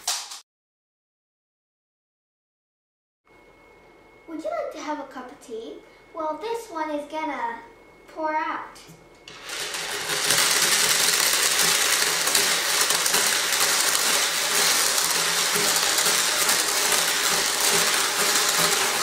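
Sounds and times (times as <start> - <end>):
beads rattling and clattering: 9.3 - 19.0.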